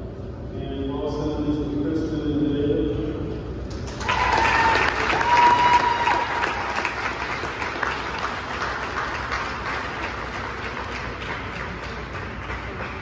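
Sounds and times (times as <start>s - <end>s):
crowd applauding: 3.8s - 13.0s.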